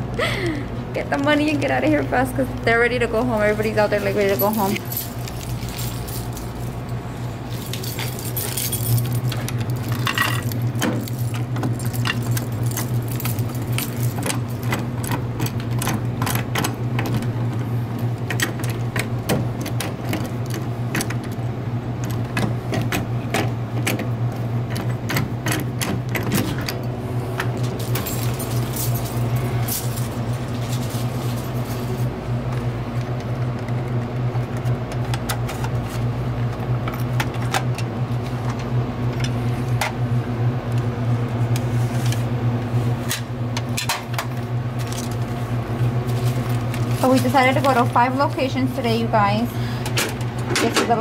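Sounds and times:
steady low hum: 0:00.0 - 0:51.0
keys jangling: 0:03.9 - 0:16.7, 0:27.6 - 0:32.0.

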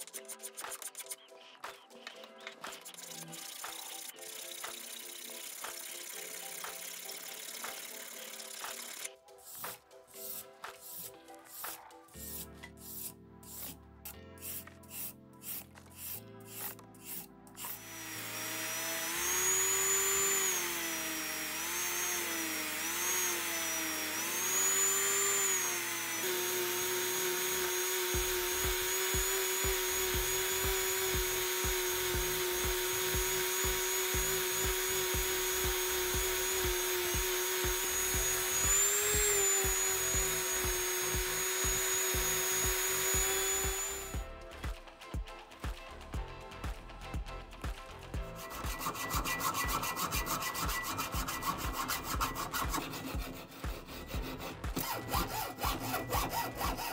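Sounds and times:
rotary tool grinding: 0:02.6 - 0:13.8, 0:14.4 - 0:44.2, 0:48.4 - 0:56.9
hand file stroking: 0:07.6 - 0:13.8, 0:14.4 - 0:44.2, 0:48.3 - 0:56.9.

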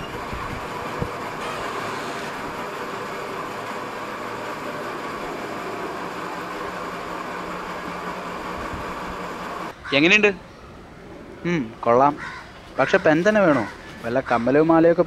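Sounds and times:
steady rushing room noise: 0:00.0 - 0:09.8.

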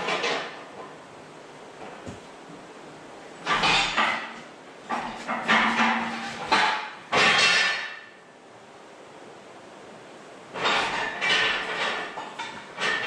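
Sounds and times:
metal tools clanking and rattling: 0:10.6 - 0:13.0.

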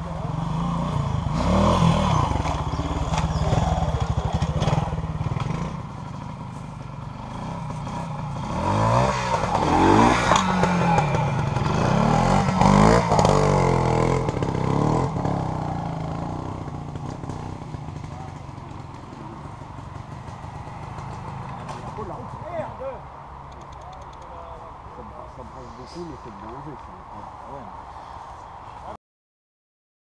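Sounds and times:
motorcycle engine revving: 0:00.0 - 0:23.8.

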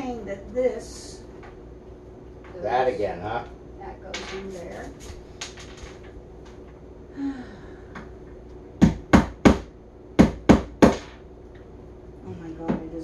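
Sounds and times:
hammer knocking on a peg: 0:08.8 - 0:11.1.

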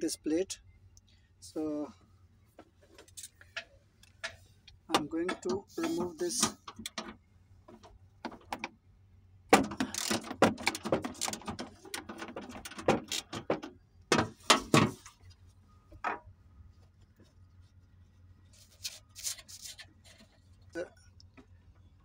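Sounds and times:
metal knocks: 0:03.5 - 0:08.7, 0:09.5 - 0:15.1.

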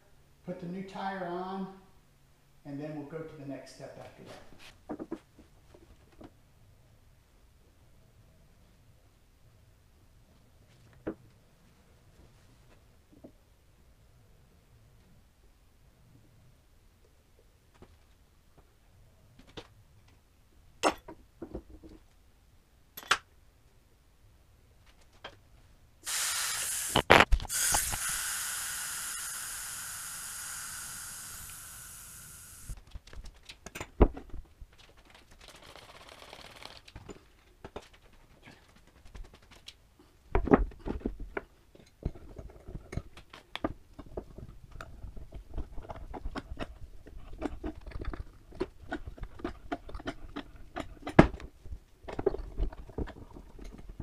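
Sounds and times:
air hissing out of a tire: 0:26.0 - 0:32.8
spray of soapy water: 0:26.0 - 0:32.8.

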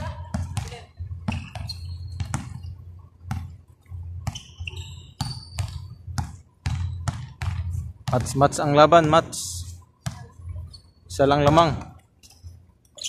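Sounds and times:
basketball bouncing on court: 0:00.0 - 0:09.4, 0:10.0 - 0:12.0
short high squeaks: 0:01.3 - 0:02.8, 0:04.3 - 0:05.9.

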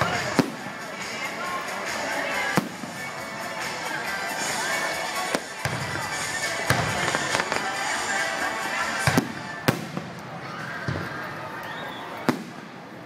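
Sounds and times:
music: 0:00.0 - 0:09.9
fireworks bursting: 0:00.0 - 0:13.0.

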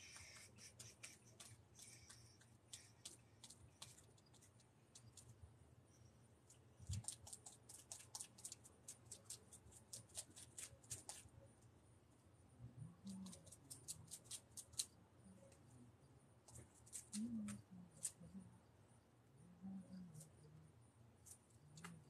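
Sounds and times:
crackling and scratching clicks: 0:00.0 - 0:05.4, 0:06.5 - 0:11.3.

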